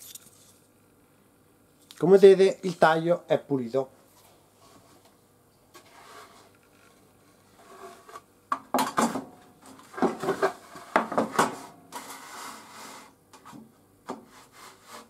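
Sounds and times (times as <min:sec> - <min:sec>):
wooden board scraping on metal table: 0:05.7 - 0:08.3, 0:09.1 - 0:15.0.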